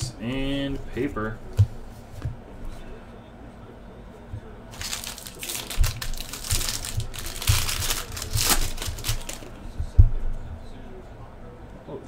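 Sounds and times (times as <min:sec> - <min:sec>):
foil wrapper tearing and crinkling: 0:04.7 - 0:09.5.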